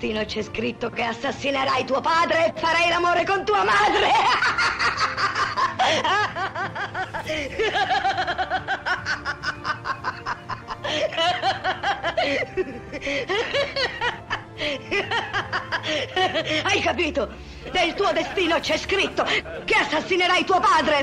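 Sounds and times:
background music: 0:00.0 - 0:21.0
person laughing mockingly: 0:03.9 - 0:16.6.

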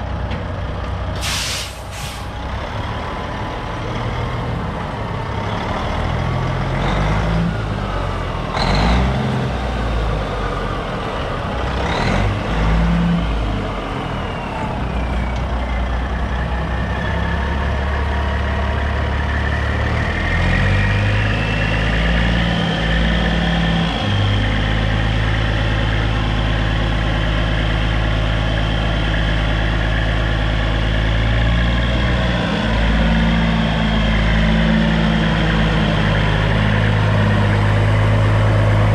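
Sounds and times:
diesel truck engine running: 0:00.0 - 0:38.9
air hisses: 0:01.2 - 0:02.3.

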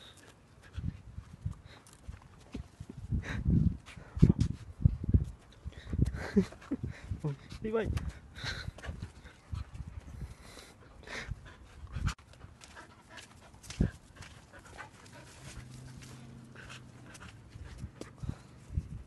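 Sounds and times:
dogs panting: 0:05.5 - 0:19.0.

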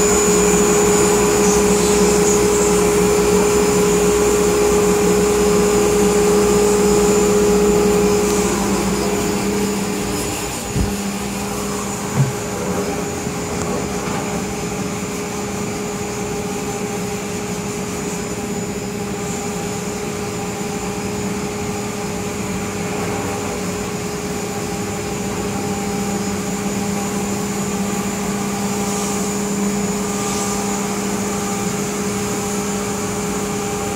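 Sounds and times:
dust collector rushing: 0:00.0 - 0:15.4
router spindle whine: 0:00.0 - 0:33.9.

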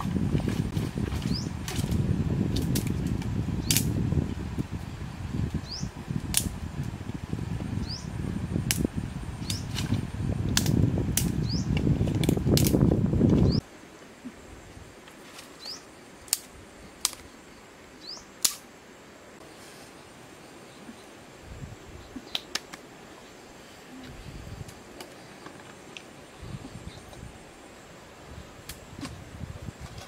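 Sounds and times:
wind rumbling on microphone: 0:00.0 - 0:13.6, 0:20.8 - 0:22.6, 0:23.8 - 0:30.0.

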